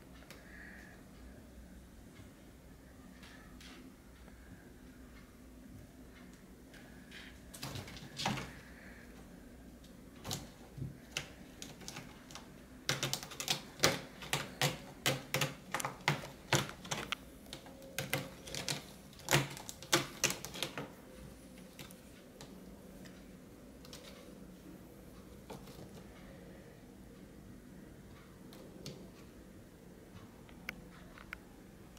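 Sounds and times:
cat claws scratching sisal post: 0:10.2 - 0:20.9.

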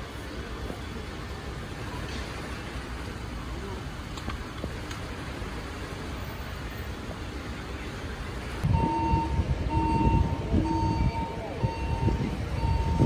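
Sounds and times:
street noise rumble: 0:00.0 - 0:13.0
vehicles idling: 0:00.0 - 0:13.0
vehicle reversing beep: 0:08.6 - 0:13.0.

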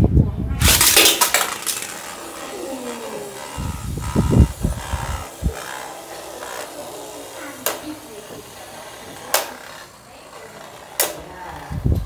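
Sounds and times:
spinning tops whirring and scraping: 0:00.6 - 0:12.0.

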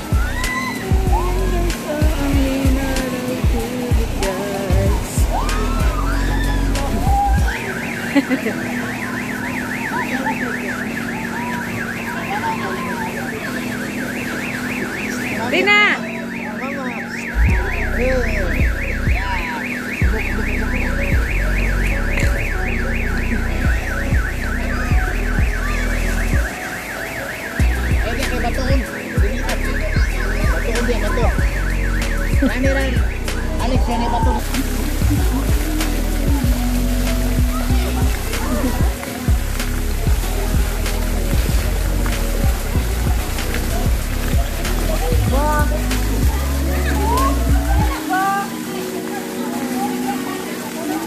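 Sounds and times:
low rumble: 0:17.4 - 0:19.4.

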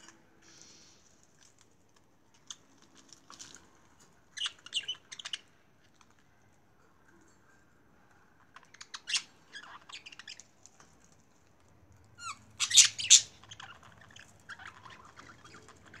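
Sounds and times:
budgerigars chirping: 0:04.4 - 0:05.5, 0:12.2 - 0:16.0.

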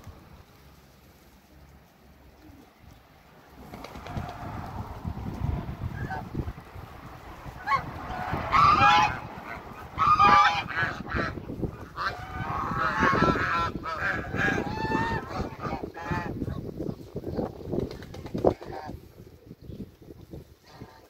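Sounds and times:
geese honking: 0:07.4 - 0:16.6.

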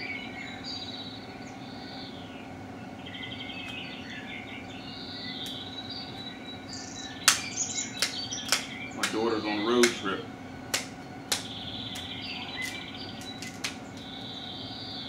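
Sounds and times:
birds chirping and trilling: 0:00.0 - 0:15.0
nature ambience hum: 0:00.0 - 0:15.0
shears cracking shell: 0:07.3 - 0:10.0, 0:10.7 - 0:14.1.

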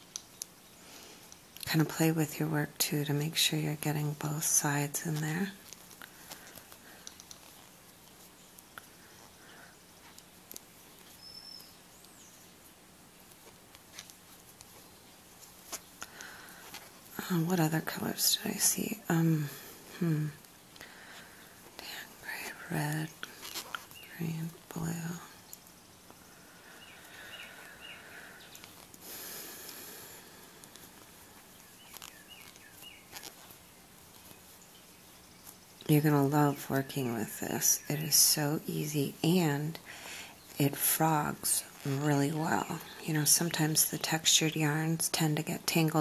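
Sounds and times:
low steady hum: 0:00.0 - 0:46.0
crochet hook and yarn handling: 0:03.5 - 0:09.4, 0:10.0 - 0:26.2, 0:30.6 - 0:37.1, 0:40.5 - 0:44.1
light clicks: 0:07.0 - 0:07.4.

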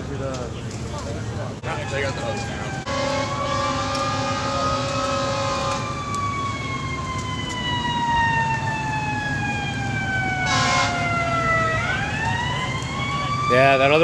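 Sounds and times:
fire engine siren wailing: 0:01.5 - 0:14.0.

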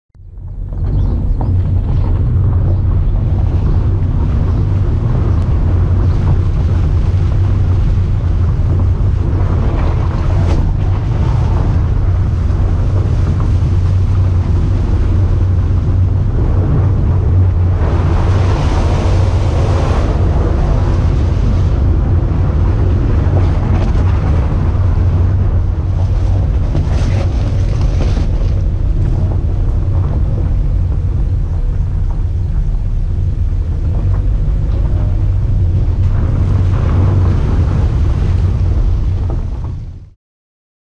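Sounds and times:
vehicle engine and road rumble: 0:00.1 - 0:40.2.

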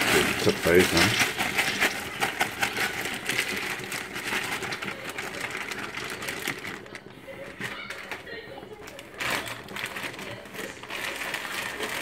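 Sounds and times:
frozen vegetables clattering into pot: 0:00.0 - 0:12.0
plastic bag crinkling: 0:00.0 - 0:12.0.

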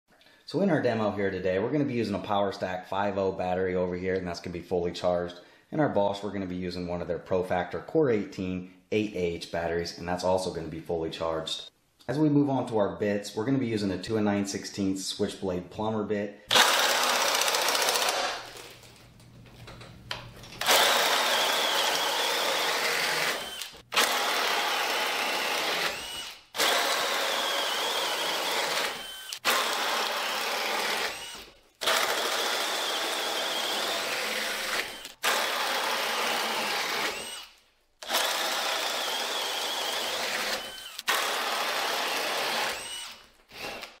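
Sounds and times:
drill boring through wood: 0:16.5 - 0:18.7, 0:20.6 - 0:44.0.

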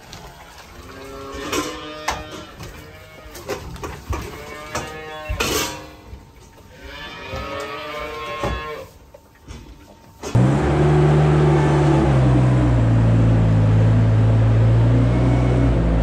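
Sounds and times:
calves mooing: 0:00.5 - 0:06.0, 0:06.7 - 0:09.0.

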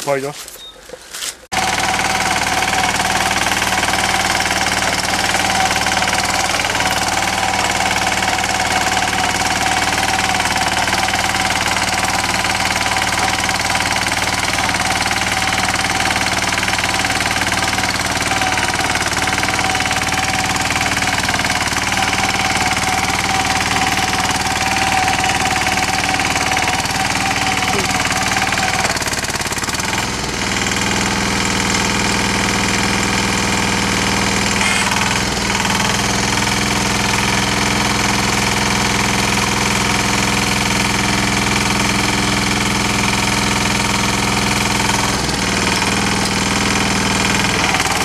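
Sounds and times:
tines working through soil: 0:00.0 - 0:48.0
tiller engine running: 0:01.5 - 0:48.0.

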